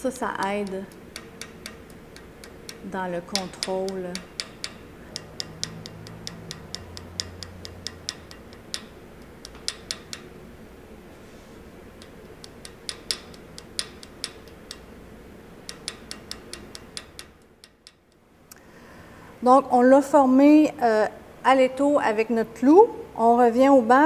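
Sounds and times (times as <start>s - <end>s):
small hammer tapping metal: 0.2s - 10.4s, 11.9s - 18.3s.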